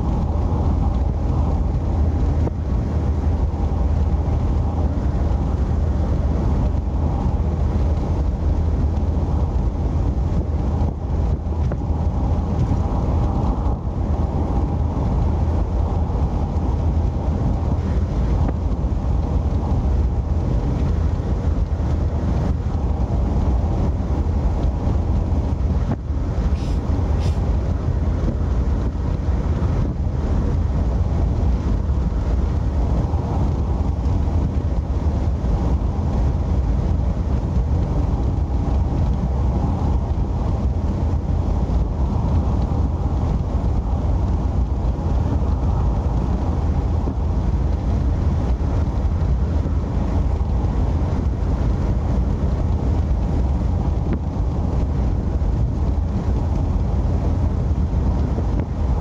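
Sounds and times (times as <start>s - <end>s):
car engine: 0.0s - 59.0s
road noise inside car: 0.0s - 59.0s.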